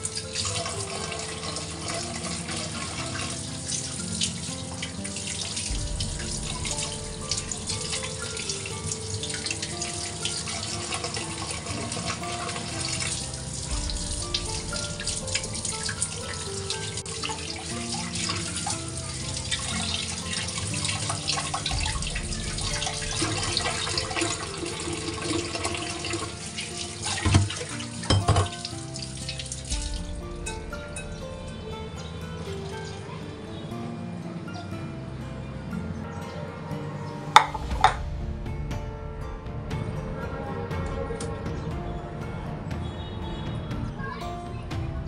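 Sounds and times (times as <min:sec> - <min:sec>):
soft background music: 0:00.0 - 0:45.0
tap water splashing into sink: 0:06.5 - 0:29.6.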